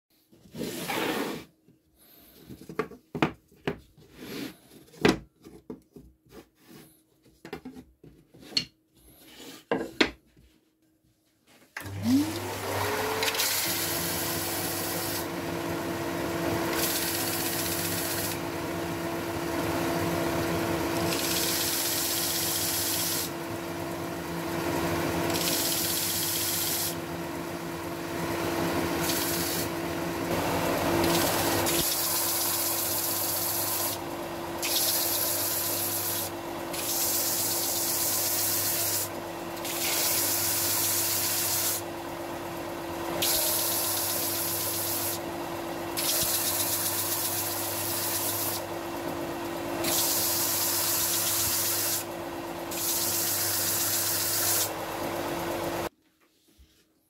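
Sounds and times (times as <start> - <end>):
sander motor hum: 11.8 - 55.9.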